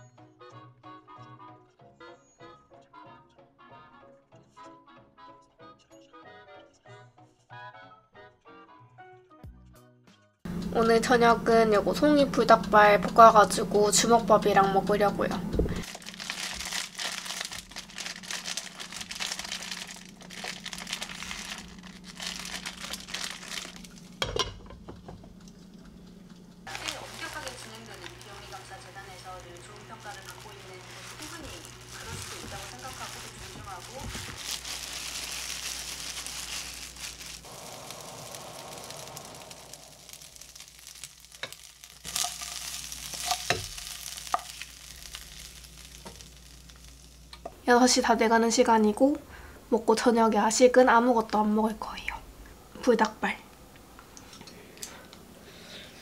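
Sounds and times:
plastic pouch crinkling: 15.8s - 24.2s, 26.7s - 47.4s
food sizzling in a frying pan: 15.8s - 24.7s, 26.6s - 48.2s.

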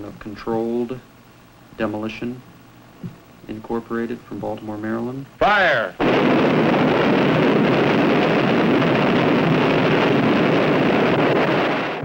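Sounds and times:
rumble of falling debris: 6.0s - 12.0s.

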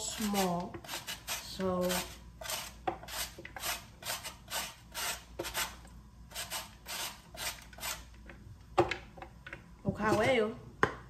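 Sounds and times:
carrot rasping on metal grater: 0.0s - 8.0s.

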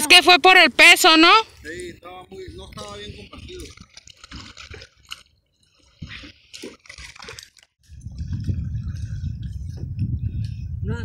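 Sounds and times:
paddle splashing in water: 2.6s - 9.8s.

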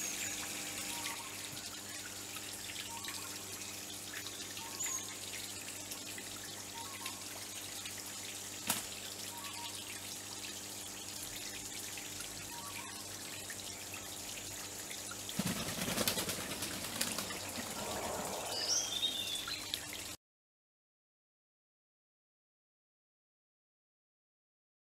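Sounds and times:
waterfall trickling into pond: 0.0s - 20.2s
high chirping bird calls: 4.6s - 5.1s, 17.3s - 19.7s
bird splashing while bathing: 8.6s - 9.1s, 15.2s - 19.9s
bird chirps: 17.7s - 19.7s.

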